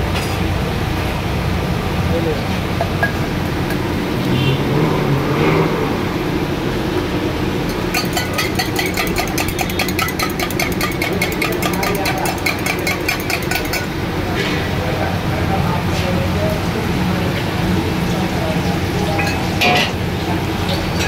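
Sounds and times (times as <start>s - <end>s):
spoon clinking in metal cup: 7.7s - 13.9s.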